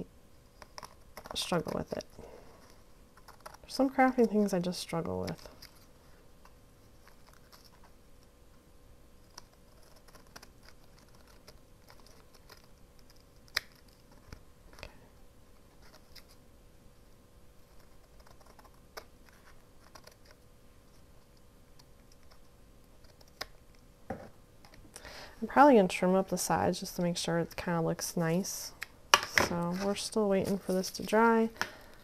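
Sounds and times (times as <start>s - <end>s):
scissors snipping paper: 9.3s - 14.4s.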